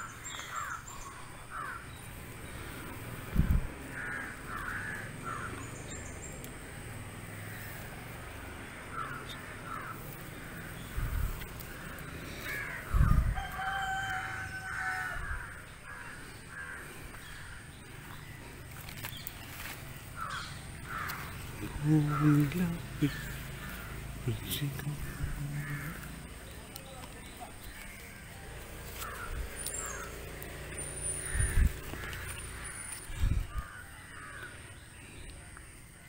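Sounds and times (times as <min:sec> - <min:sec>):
crows cawing: 0:00.0 - 0:02.9, 0:03.8 - 0:06.0, 0:07.2 - 0:26.7, 0:27.6 - 0:35.1
rooster crowing: 0:12.7 - 0:15.6.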